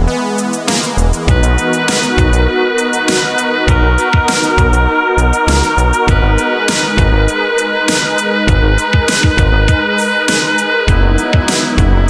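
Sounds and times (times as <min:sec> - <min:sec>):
deep pitch-dropping bass hits: 0:01.0 - 0:02.6, 0:03.7 - 0:07.4, 0:08.5 - 0:09.8, 0:10.9 - 0:12.0
sustained held tones: 0:01.3 - 0:11.4.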